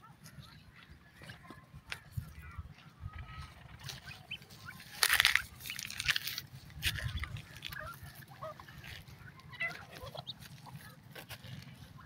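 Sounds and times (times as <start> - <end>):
francolins chirping and clucking: 0.0 - 12.0.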